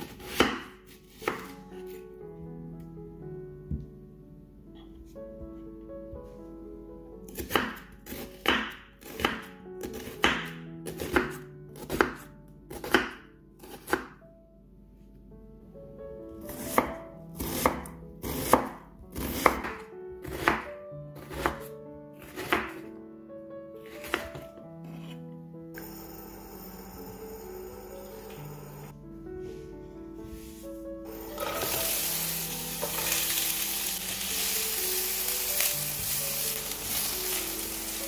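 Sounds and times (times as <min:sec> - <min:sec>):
knife chopping onion on board: 0:00.0 - 0:01.5, 0:07.3 - 0:14.2, 0:16.5 - 0:22.8.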